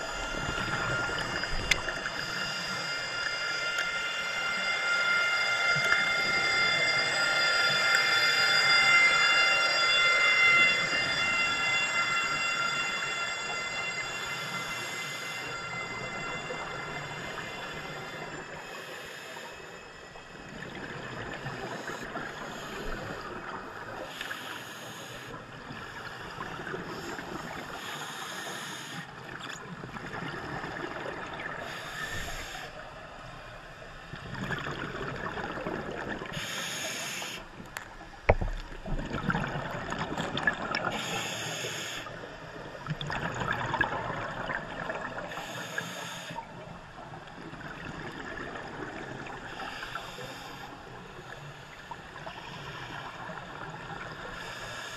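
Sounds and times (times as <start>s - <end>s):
regulator inhalation hiss: 17.0s - 19.8s, 24.0s - 25.4s, 26.9s - 29.1s, 31.6s - 32.8s, 36.3s - 37.5s, 40.9s - 42.2s, 45.3s - 46.4s, 49.5s - 53.2s, 54.4s - 54.9s
gurgling exhaled bubbles: 34.2s - 36.4s, 38.3s - 40.9s, 42.8s - 45.3s.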